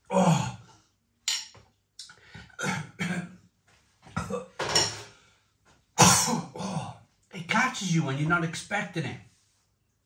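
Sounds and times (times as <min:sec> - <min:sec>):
man coughing: 0:02.6 - 0:03.4, 0:06.0 - 0:06.9.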